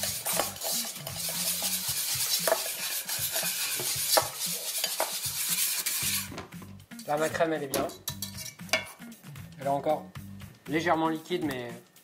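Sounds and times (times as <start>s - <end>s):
whisk swishing in cream: 0.0s - 6.3s
whisk wires clicking on pot: 0.0s - 6.3s.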